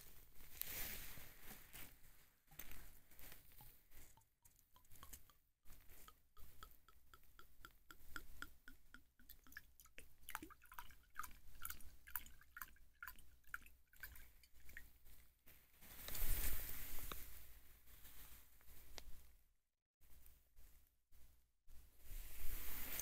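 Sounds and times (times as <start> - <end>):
wine dripping into a cup: 3.4 - 14.9.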